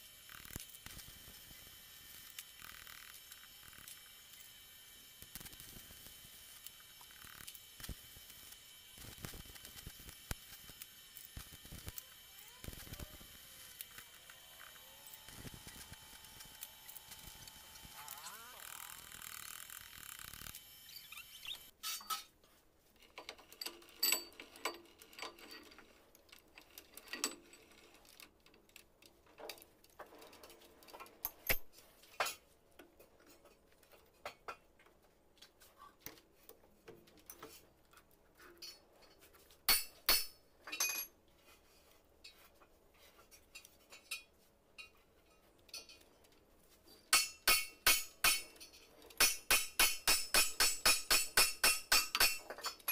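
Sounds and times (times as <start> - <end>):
metallic clinks and knocks: 23.2 - 25.8, 39.7 - 41.1.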